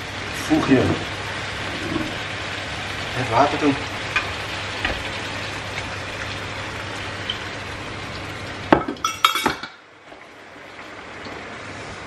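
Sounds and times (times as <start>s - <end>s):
water pouring into pan: 0.0s - 9.4s
frying pan sizzling: 0.0s - 12.0s
clinks and knocks with ring: 9.0s - 9.7s.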